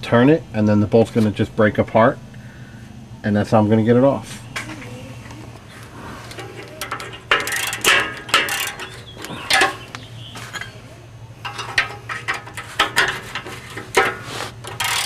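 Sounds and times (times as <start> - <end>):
steady low hum: 0.0 - 15.0
wrench clicking on metal bolt: 6.8 - 9.0, 14.7 - 15.0.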